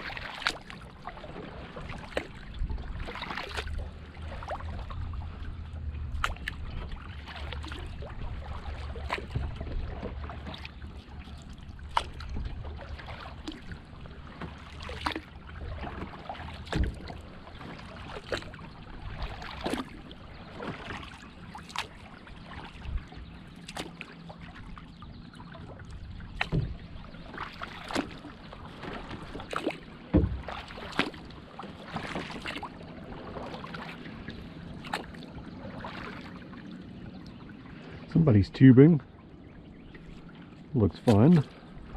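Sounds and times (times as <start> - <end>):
kayak paddle splashing: 0.0 - 41.9
water lapping against hull: 0.0 - 41.9
knocks on kayak: 16.7 - 17.1, 26.4 - 26.8, 30.1 - 30.6.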